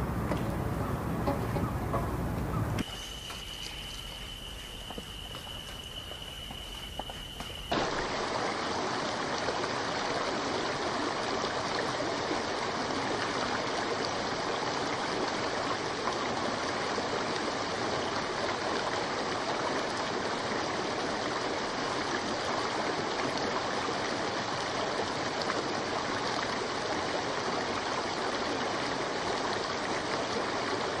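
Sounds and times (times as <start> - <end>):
stream water rushing: 0.0 - 5.8, 7.1 - 31.0
faint high-pitched tone: 0.0 - 7.7.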